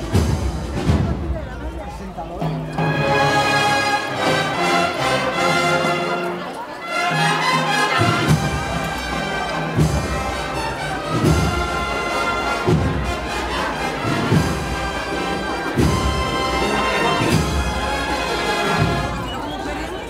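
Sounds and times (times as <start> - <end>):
brass band playing a march: 0.0 - 1.6, 2.4 - 20.0
deep drum beat: 0.0 - 3.4, 8.0 - 19.2.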